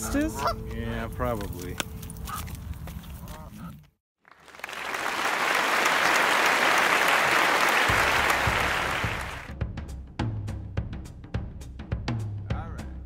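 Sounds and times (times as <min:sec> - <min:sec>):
large crowd applauding: 0:04.2 - 0:09.5
low drum beat: 0:07.9 - 0:13.0.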